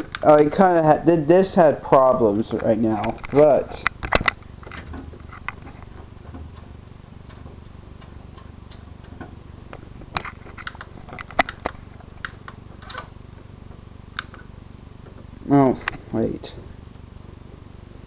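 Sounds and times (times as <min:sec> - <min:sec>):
steady low hum: 0:00.0 - 0:18.0
fingers clicking tape mechanism: 0:03.0 - 0:13.1.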